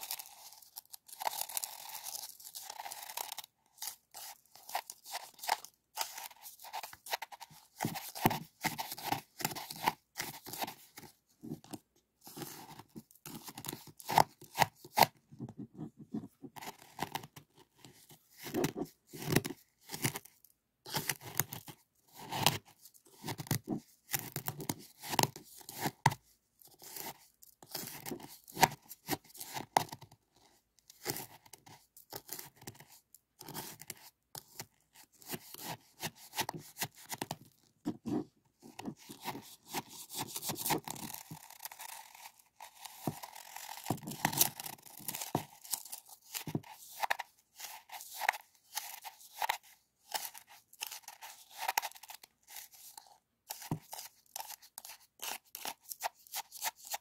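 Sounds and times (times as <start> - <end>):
plastic spoon scraping crystals: 38.0 - 57.0.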